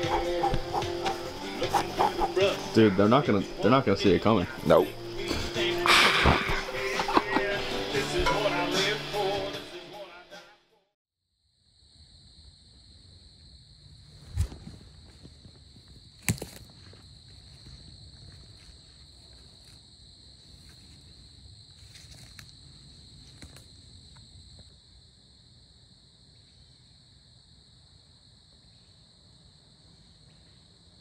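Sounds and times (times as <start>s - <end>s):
night insects chirping: 0.0s - 9.6s, 11.3s - 31.0s
footsteps rustling through woods: 14.2s - 23.9s.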